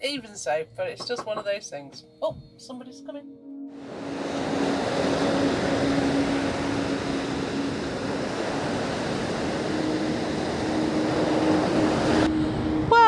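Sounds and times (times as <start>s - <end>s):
surf breaking on beach: 3.8s - 12.8s
wind buffeting microphone: 3.9s - 13.0s.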